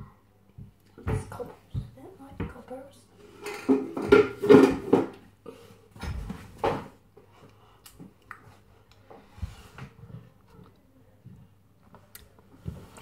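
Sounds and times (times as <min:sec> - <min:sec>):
household items clattering on shelf: 0:03.2 - 0:05.2.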